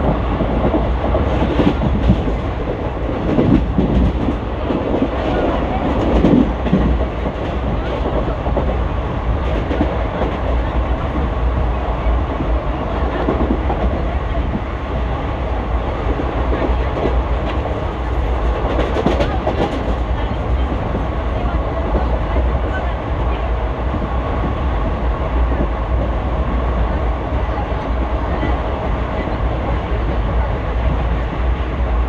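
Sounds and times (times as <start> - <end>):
train wheels rumbling on rails: 0.0 - 32.0.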